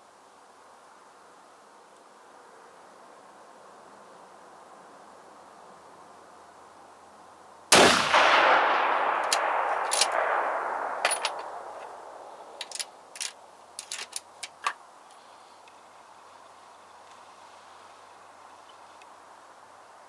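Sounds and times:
rifle shot: 7.7 - 12.5
rifle handling clicks: 9.1 - 10.4, 12.6 - 14.8.

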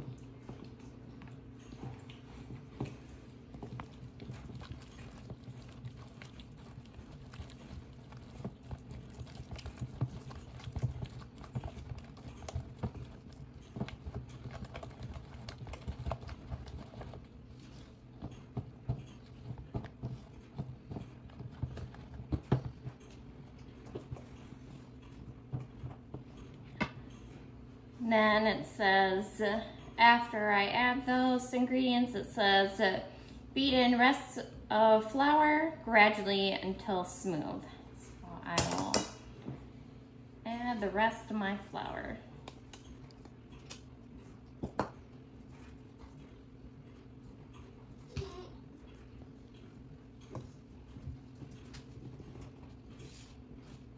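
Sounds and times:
spatula beating batter in bowl: 0.0 - 27.6, 40.5 - 53.9
steady low hum: 0.0 - 53.9.

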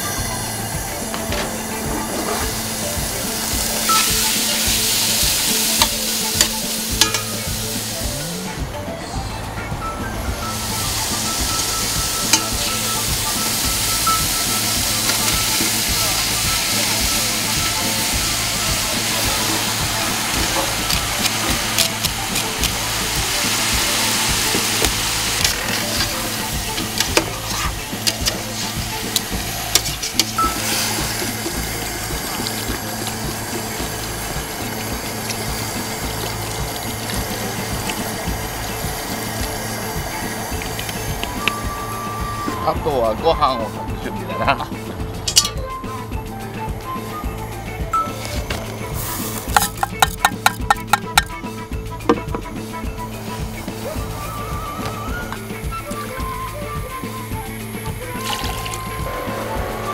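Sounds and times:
meat sizzling in hot oil: 0.0 - 8.4, 10.4 - 42.7, 48.1 - 51.4
metal tongs tapping pot: 5.6 - 7.6, 11.6 - 15.6, 24.4 - 33.8, 45.3 - 45.6, 49.4 - 51.4.

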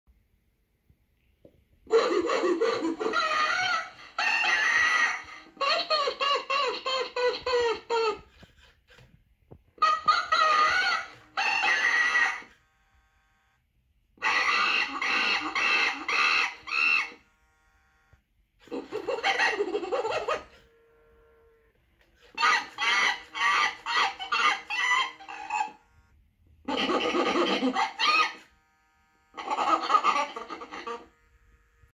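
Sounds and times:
toy chimpanzee hooting and laughing: 1.9 - 9.0, 9.8 - 12.6, 14.2 - 17.3, 18.6 - 20.8, 22.2 - 25.9, 26.6 - 28.6, 29.3 - 31.2.

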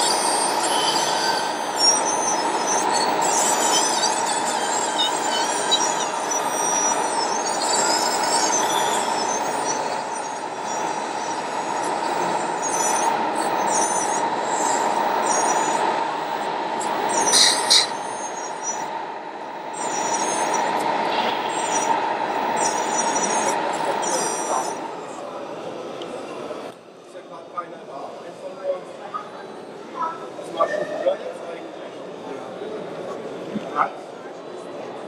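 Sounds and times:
short high squeaks: 0.0 - 24.8
electric motors whining: 0.0 - 25.3.

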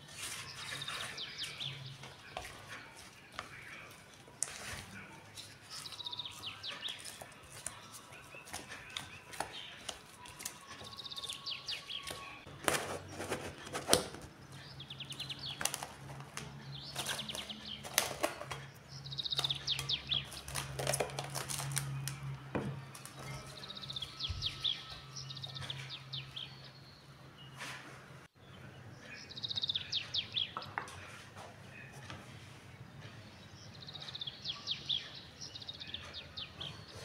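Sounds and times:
cling film crinkling: 0.0 - 24.8.

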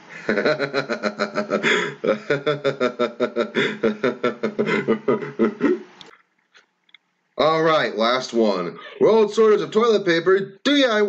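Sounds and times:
man laughing hard: 0.0 - 5.9.

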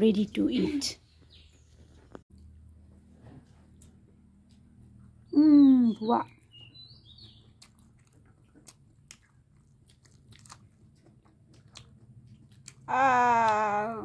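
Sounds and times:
chewing and crunching food: 1.2 - 13.8
person saying aah: 12.9 - 14.0.

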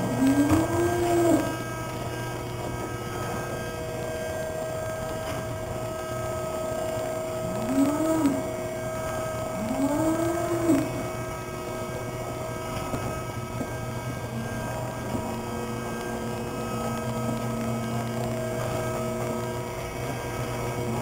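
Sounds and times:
cows mooing: 0.0 - 1.8, 7.4 - 11.3
machine hum: 0.0 - 21.0.

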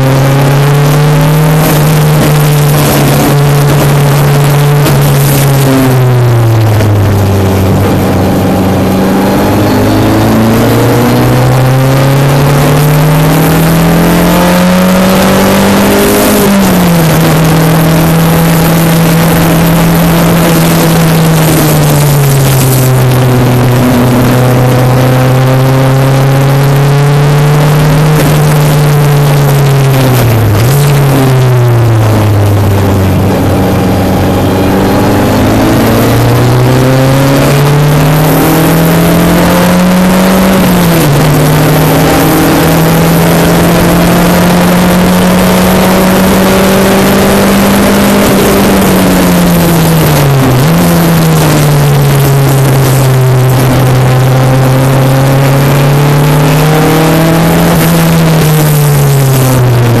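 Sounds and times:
race car engine accelerating: 0.0 - 60.0.

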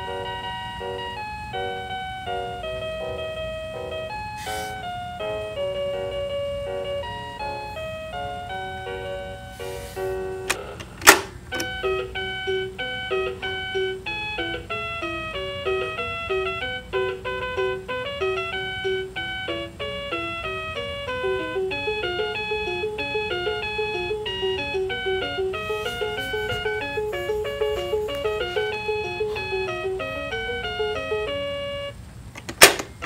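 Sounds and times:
toy electronic beeping melody: 0.0 - 10.8, 11.5 - 32.0.

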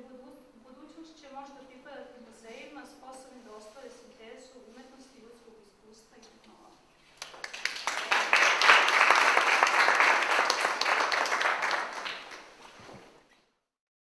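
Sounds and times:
audience applauding: 7.2 - 12.6.

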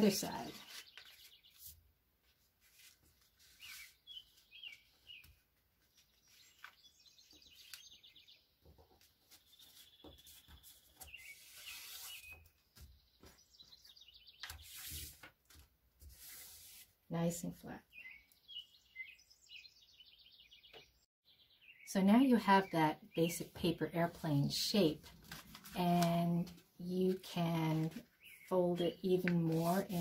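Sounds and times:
paper rustling: 0.0 - 7.8, 9.0 - 12.6, 14.4 - 16.9, 25.0 - 26.6, 29.2 - 30.0.

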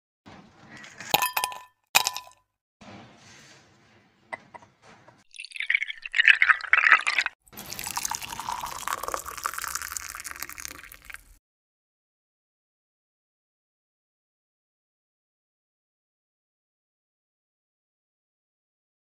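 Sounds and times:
milk pouring over ice: 5.3 - 11.4.

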